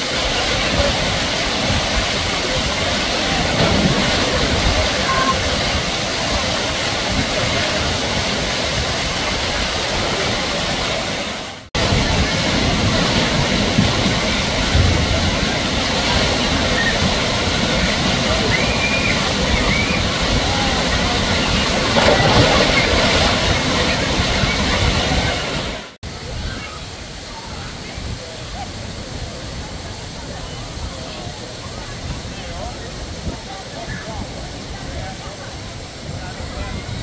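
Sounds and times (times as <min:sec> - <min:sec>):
splashing water: 0:00.0 - 0:26.0.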